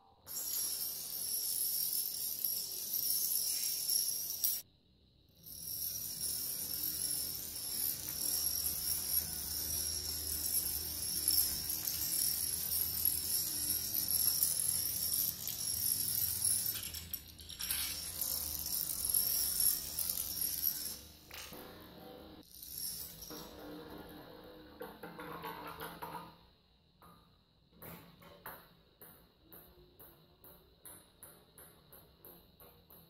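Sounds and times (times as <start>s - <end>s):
dominoes clattering on glass: 0.3s - 4.6s, 5.4s - 21.6s, 22.3s - 24.2s.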